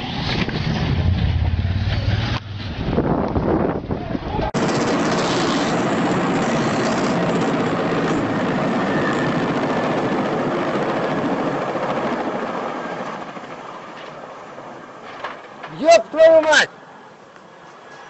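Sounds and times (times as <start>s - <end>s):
helicopter flying overhead: 4.6s - 15.1s.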